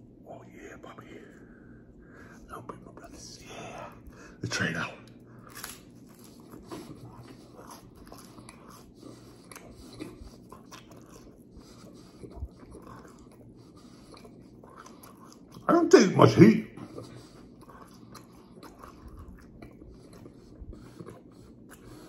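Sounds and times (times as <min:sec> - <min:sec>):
person chewing crispy pizza: 0:05.0 - 0:15.9, 0:16.8 - 0:22.0.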